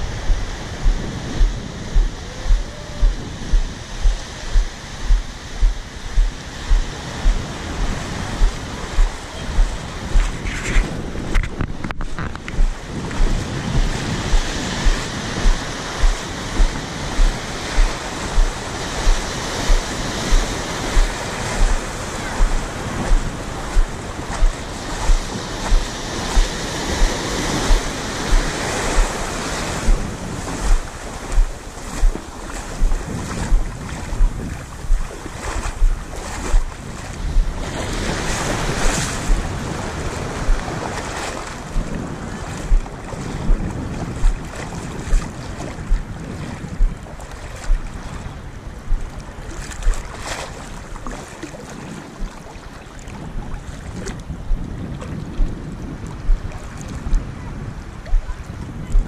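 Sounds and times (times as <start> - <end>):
regular low thump: 0.0 - 37.6, 39.2 - 39.6, 40.4 - 40.7, 41.7 - 42.0, 42.7 - 44.4, 45.1 - 46.1, 46.7 - 47.9, 48.8 - 49.1, 52.2 - 52.4, 58.1 - 59.0
small waves breaking on shore: 0.0 - 59.0
wind buffeting microphone: 0.0 - 59.0.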